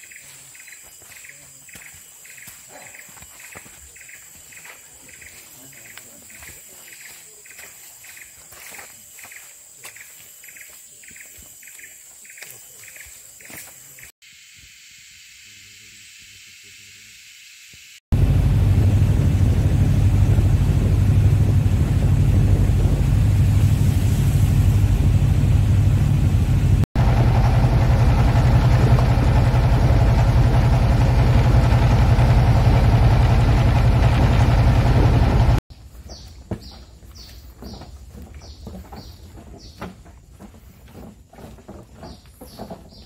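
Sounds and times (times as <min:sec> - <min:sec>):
boat engine low drone: 0:18.2 - 0:35.6
hiss: 0:23.2 - 0:25.4.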